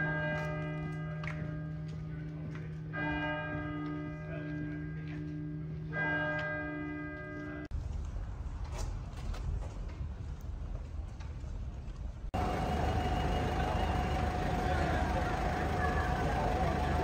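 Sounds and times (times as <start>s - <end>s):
large church bell tolling: 0.0s - 7.7s, 12.4s - 17.0s.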